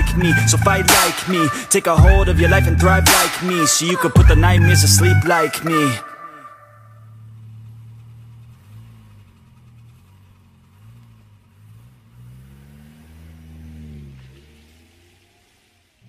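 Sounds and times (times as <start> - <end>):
sliding synth bass notes: 0.0 - 1.2, 2.0 - 3.3, 4.2 - 5.3.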